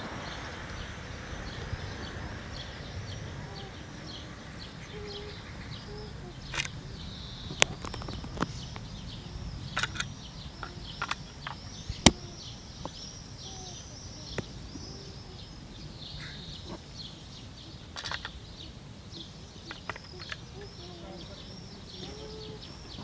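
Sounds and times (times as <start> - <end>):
birds chirping: 0.0 - 23.0
sharp clicks: 5.9 - 13.1, 17.9 - 18.5, 19.6 - 20.8.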